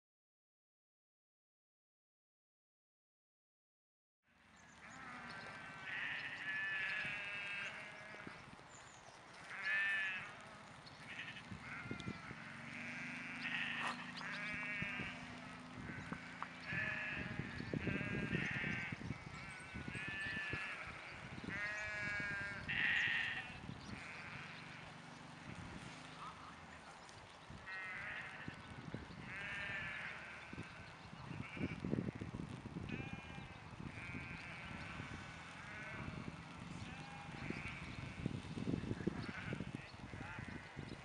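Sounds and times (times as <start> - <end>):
sheep bleating: 4.8 - 8.4, 9.4 - 25.0, 27.6 - 28.6, 29.2 - 31.8, 32.9 - 38.3, 39.0 - 40.9.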